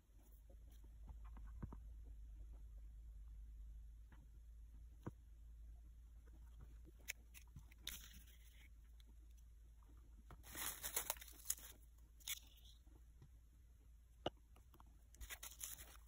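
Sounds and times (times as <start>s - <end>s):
crinkly rustling: 10.3s - 12.8s, 15.2s - 16.0s.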